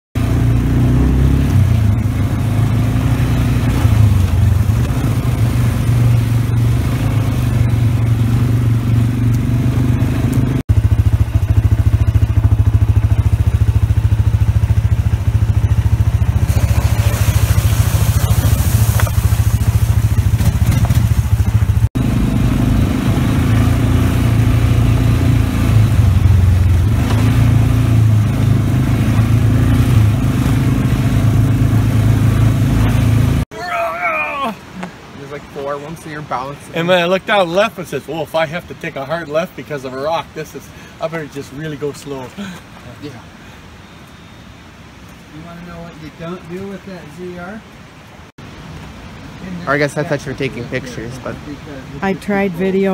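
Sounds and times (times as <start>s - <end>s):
atv engine running: 0.2s - 33.4s, 52.0s - 52.9s
hiss: 16.5s - 20.2s.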